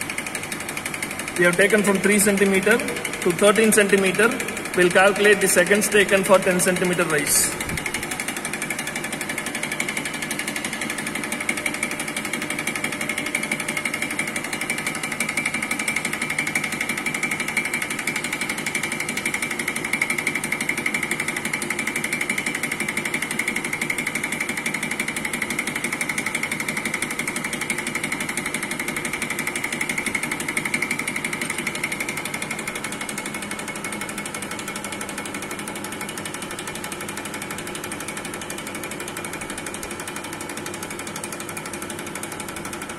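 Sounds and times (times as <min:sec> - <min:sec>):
pump mechanical knocking: 0:00.0 - 0:42.9.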